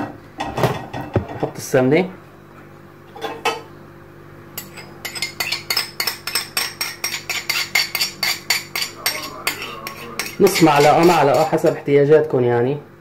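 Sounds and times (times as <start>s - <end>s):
steady low hum: 0.0s - 13.0s
metal spoon clinking on saucer: 4.6s - 11.7s.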